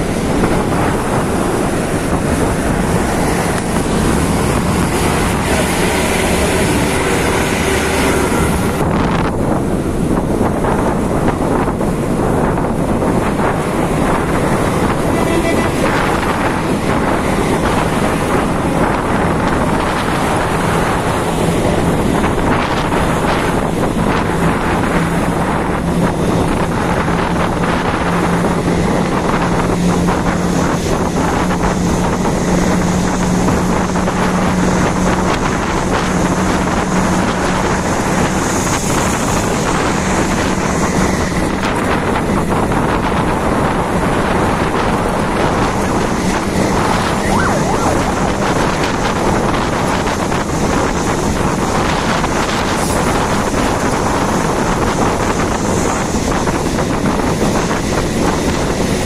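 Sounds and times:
steady low drone: 0.0 - 38.2
bus road and engine noise: 0.0 - 59.0
wind rushing over microphone: 0.0 - 59.0.

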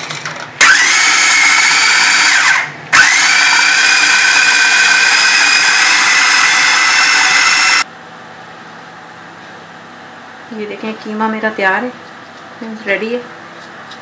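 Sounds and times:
food processor motor grinding: 0.1 - 7.9.

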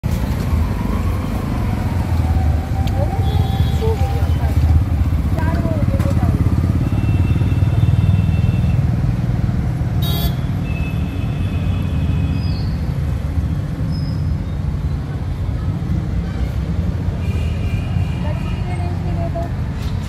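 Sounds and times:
motorcycle and car engines passing: 0.1 - 14.3.

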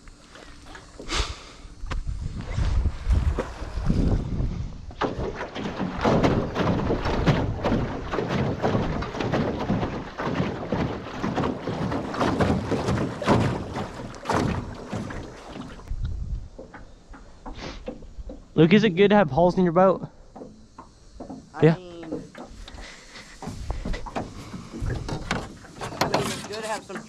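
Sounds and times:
wind buffeting microphone: 1.7 - 16.9
water splashing: 4.9 - 18.6, 20.4 - 27.0.

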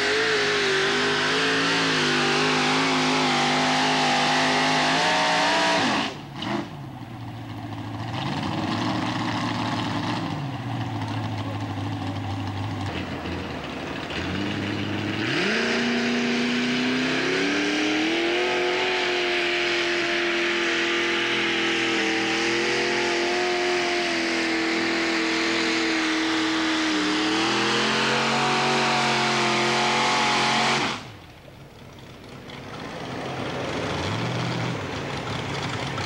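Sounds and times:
tractor engine at high revs: 0.0 - 36.0
low engine hum: 6.2 - 36.0.

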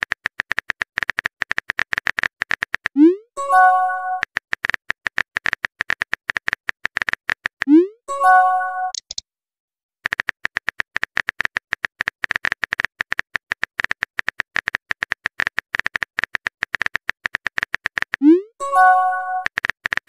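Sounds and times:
message chime: 3.1 - 4.2, 7.8 - 9.0, 18.3 - 19.5.

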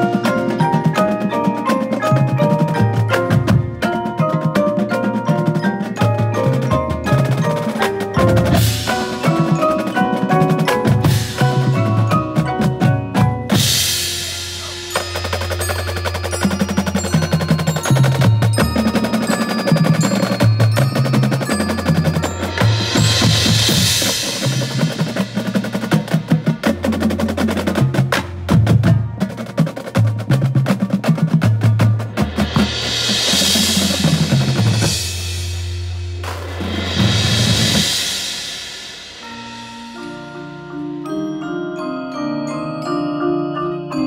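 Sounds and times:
snare drums: 0.0 - 39.5
tenor drums: 0.0 - 41.9
marimbas and vibraphones: 0.0 - 44.0
bass drums: 5.4 - 40.0
cymbal washes: 21.8 - 26.6, 32.4 - 40.4.

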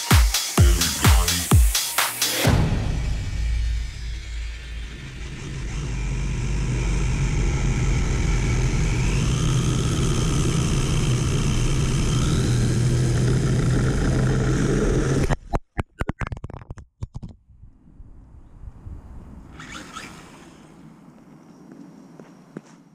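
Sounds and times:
low rumble: 2.4 - 15.3, 17.4 - 21.6
electric motor high whine: 3.0 - 15.3, 19.5 - 22.7.

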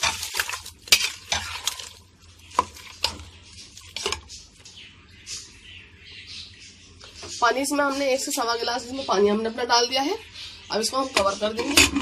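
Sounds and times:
metal spoon scraping pot: 0.0 - 4.4, 11.1 - 12.0.

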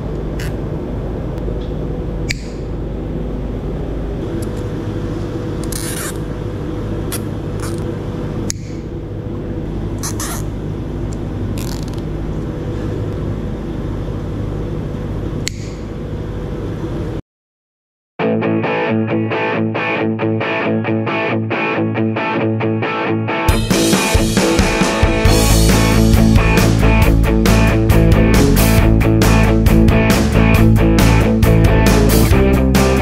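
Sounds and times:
machine drone with low hum: 0.0 - 17.2, 23.3 - 33.0
sharp metallic tool clicks: 2.3 - 2.6, 8.5 - 8.8, 15.5 - 15.8.

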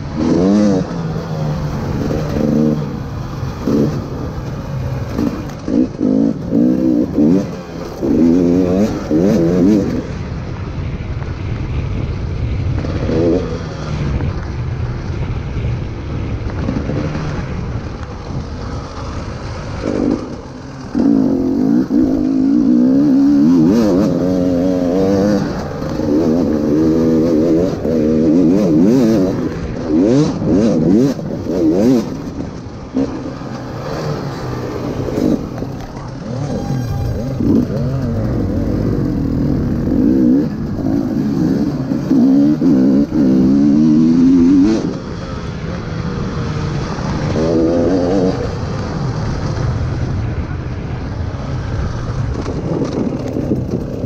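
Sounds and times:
two-stroke engine revving: 0.0 - 10.2, 18.8 - 49.9.

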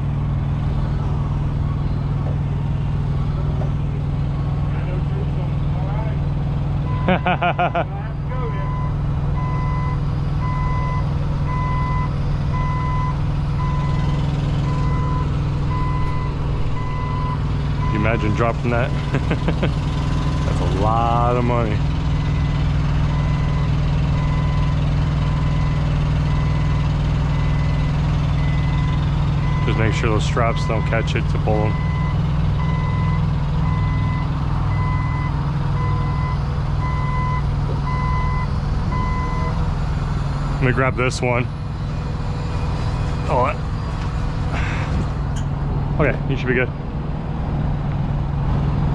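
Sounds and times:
engine humming: 0.0 - 48.9
backup alarm beeping: 8.6 - 18.6, 31.7 - 39.6.

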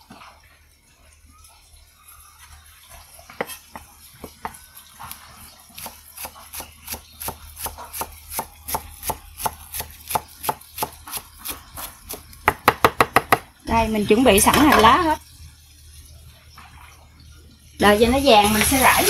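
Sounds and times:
knife chopping on wooden board: 12.5 - 13.5.

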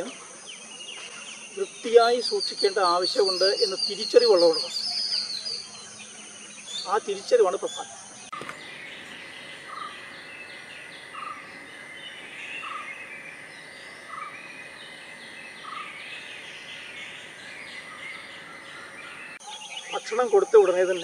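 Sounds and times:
faint high chirps: 0.9 - 20.0
steady high tone: 8.3 - 19.4.

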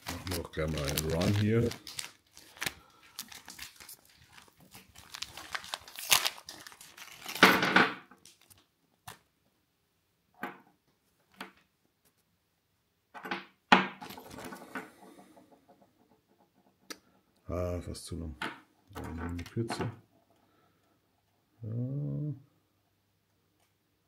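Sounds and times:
foil packet crinkling and tearing: 0.0 - 7.6, 8.2 - 9.2, 14.0 - 14.5
plastic bait rustling and clicking: 0.0 - 7.6.

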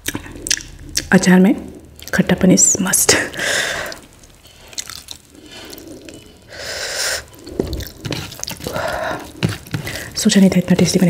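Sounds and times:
fingers mixing rice on steel plate: 7.2 - 11.0.

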